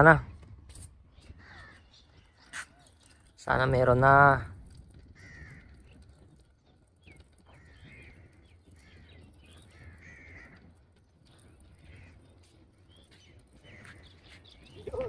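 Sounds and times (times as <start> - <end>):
bird calling: 11.4 - 15.0.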